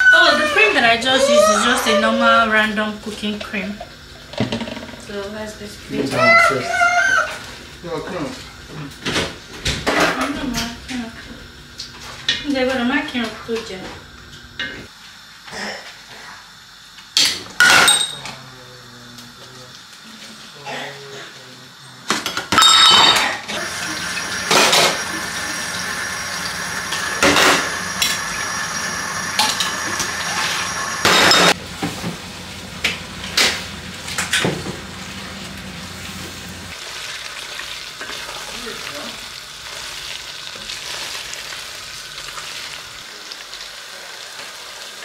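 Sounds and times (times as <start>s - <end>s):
water running: 0.0s - 8.6s, 23.5s - 31.6s, 34.4s - 45.0s
dishes clinking in sink: 17.2s - 18.4s, 22.1s - 25.6s, 26.4s - 28.4s, 29.3s - 31.6s
light sizzling: 23.5s - 45.0s
steady hum: 23.8s - 34.3s.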